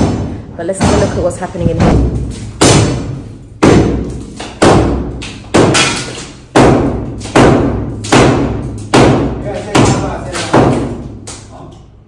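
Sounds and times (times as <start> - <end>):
hammer blows on masonry: 0.0 - 11.1.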